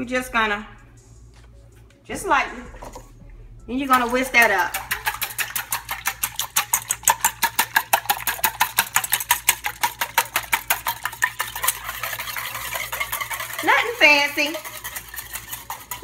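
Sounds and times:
wire whisk ticking against saucepan: 0:03.9 - 0:16.0.

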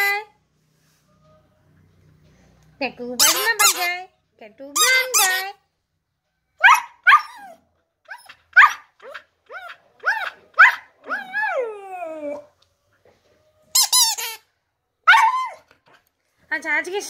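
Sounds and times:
dog yelping: 0:06.6 - 0:12.5, 0:15.0 - 0:15.7
dog yipping: 0:06.6 - 0:12.5, 0:15.0 - 0:15.7
dog howling: 0:09.5 - 0:12.5.

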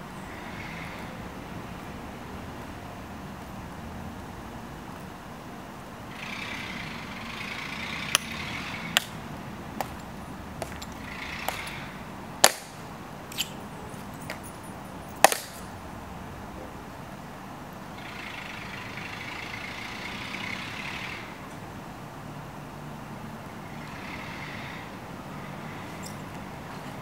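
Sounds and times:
heel footsteps on stone: 0:09.8 - 0:11.8.

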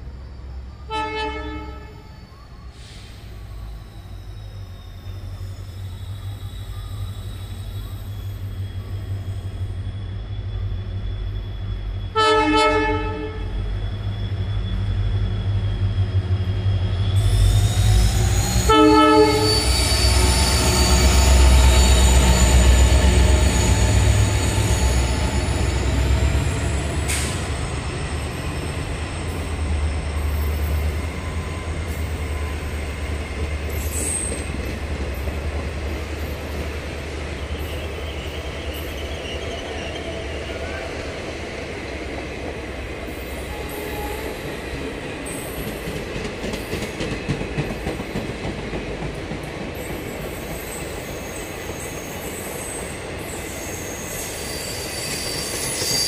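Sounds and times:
diesel locomotive engine rumble: 0:00.0 - 0:56.0
train horn blasts: 0:00.9 - 0:02.2, 0:12.1 - 0:13.6, 0:18.6 - 0:20.0, 0:43.5 - 0:44.5.

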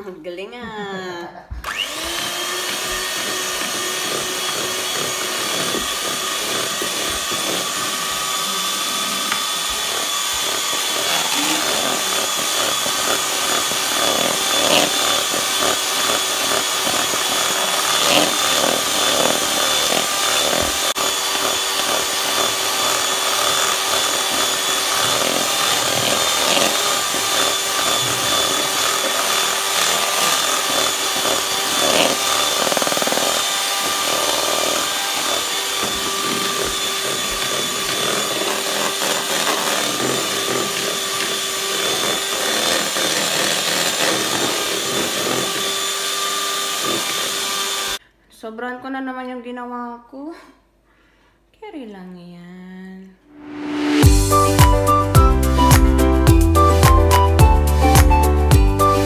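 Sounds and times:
electric hand mixer whine: 0:01.5 - 0:48.0, 0:53.4 - 0:59.0.

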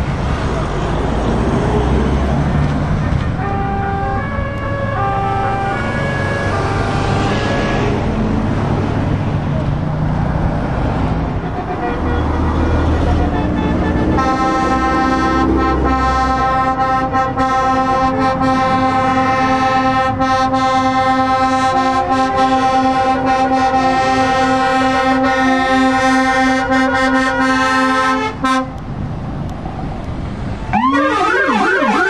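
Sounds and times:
passing lorries: 0:00.0 - 0:32.0
truck air horn: 0:03.2 - 0:08.1, 0:11.4 - 0:28.8, 0:30.8 - 0:32.0.

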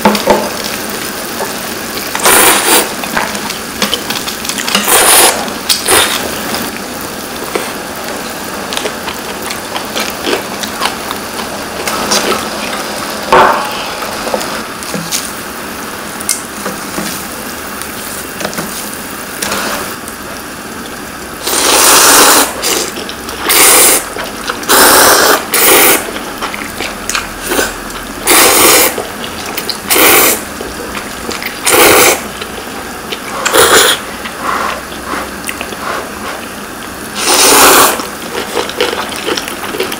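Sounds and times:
pot boiling: 0:00.0 - 0:39.9
loud noodle slurps: 0:02.1 - 0:03.0, 0:04.8 - 0:06.4, 0:21.4 - 0:24.1, 0:24.7 - 0:26.1, 0:27.4 - 0:29.0, 0:29.9 - 0:30.4, 0:31.6 - 0:32.3, 0:33.2 - 0:36.5, 0:37.2 - 0:39.4.

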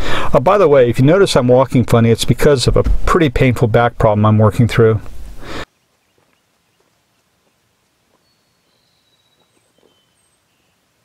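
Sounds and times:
bird chirps: 0:05.7 - 0:11.0.

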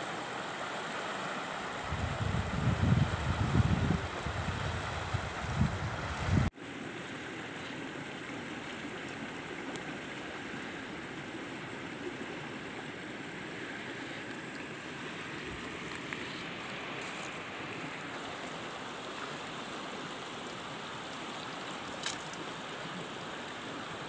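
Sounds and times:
river running over rocks: 0:00.0 - 0:24.0
wind rumbling on microphone: 0:01.8 - 0:06.5.

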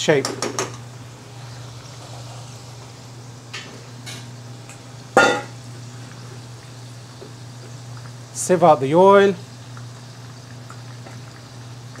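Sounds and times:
steady low hum: 0:00.0 - 0:12.0
okra sizzling in oil: 0:00.8 - 0:08.4, 0:09.2 - 0:12.0
metal utensil clanking on pan: 0:05.2 - 0:05.6.

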